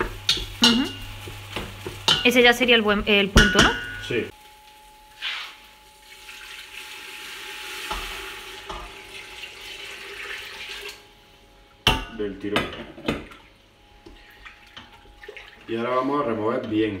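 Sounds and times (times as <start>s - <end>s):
liquid pouring into pot: 6.0s - 11.1s, 14.4s - 15.8s.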